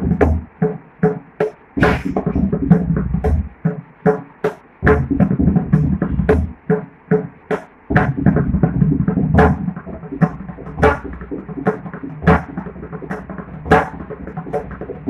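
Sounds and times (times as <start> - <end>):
sharp hand drum strokes: 0.0 - 15.0
deep bass drum strokes: 1.8 - 3.6, 4.8 - 6.6.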